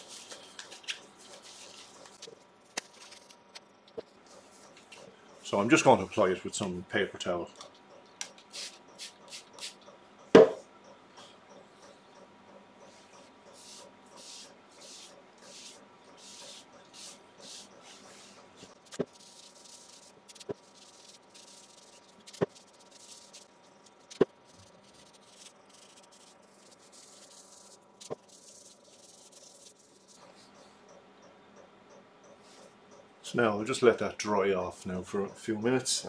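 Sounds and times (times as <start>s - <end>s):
paper towel rubbing on wood: 13.6s - 23.5s.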